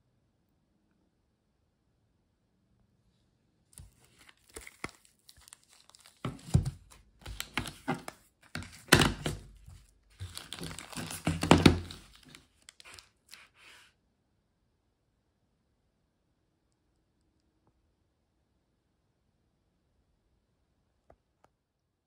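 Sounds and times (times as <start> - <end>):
plastic packaging crinkling: 3.8 - 13.8
plastic cases knocking on table: 6.2 - 9.6, 10.2 - 12.2.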